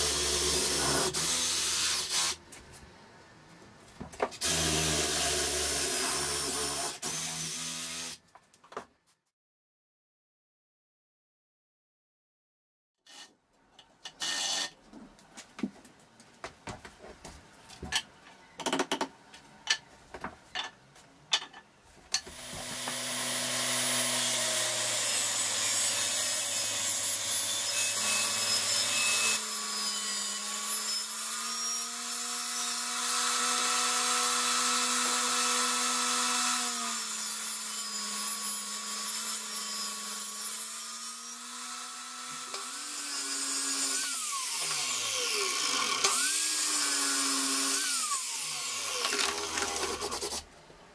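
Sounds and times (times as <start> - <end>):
table saw ripping boards: 22.2 - 31.9, 42.2 - 50.5.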